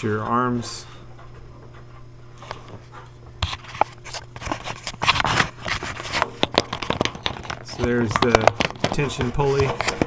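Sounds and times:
hands scraping inside dryer: 2.6 - 10.0.

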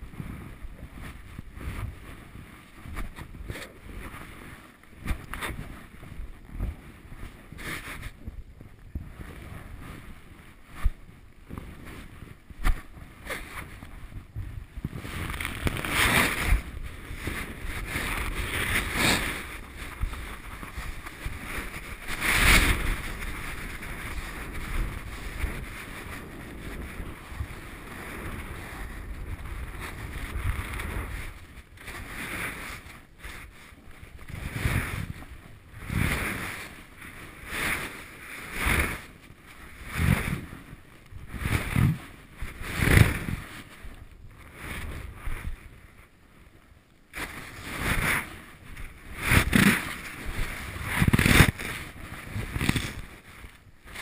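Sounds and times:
rushing wind: 0.0 - 54.0
snow swishing: 9.2 - 43.8, 47.2 - 54.0.

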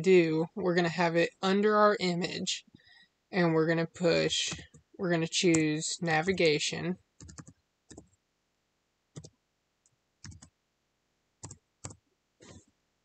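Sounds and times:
keyboard keys clicking: 7.2 - 8.1, 10.2 - 10.5, 11.4 - 12.0.

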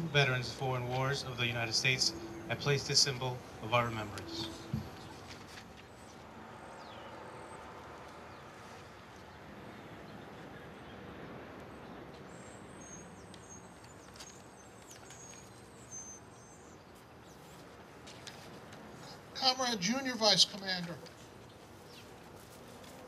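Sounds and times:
faint outdoor background noise: 0.0 - 23.0
small bird chirping: 12.3 - 17.6.

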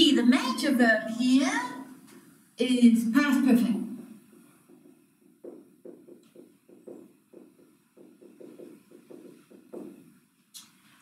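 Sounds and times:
marker writing on whiteboard: 4.3 - 10.2.

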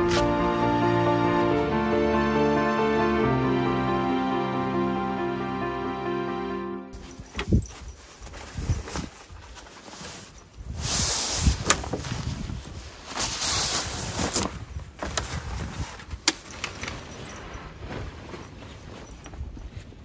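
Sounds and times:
bags dragged on metal bed: 7.0 - 14.6
fabric rustling: 7.0 - 20.0.

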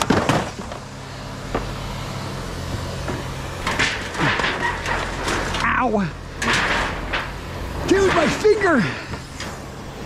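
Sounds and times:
knocks and clanks of handling: 0.0 - 0.8, 3.0 - 5.7, 6.4 - 9.6
vehicle engine idling: 0.0 - 10.0.

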